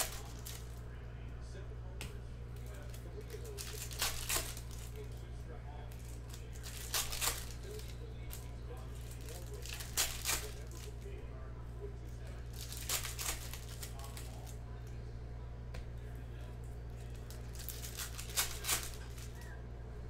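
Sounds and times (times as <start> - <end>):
card pack wrappers tearing: 0.0 - 0.8, 2.6 - 5.2, 5.9 - 11.0, 12.5 - 14.6, 17.1 - 19.4
steady low hum: 0.0 - 20.0.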